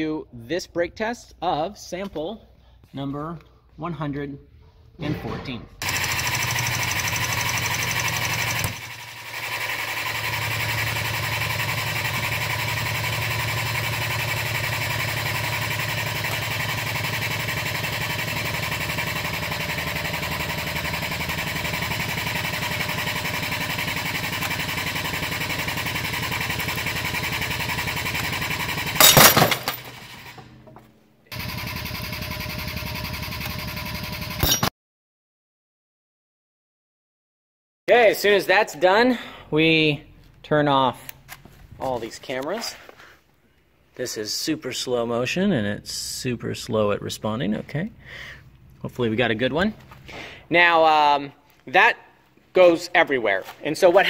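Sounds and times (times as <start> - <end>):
hydraulic foot pump pulsing: 5.8 - 34.7.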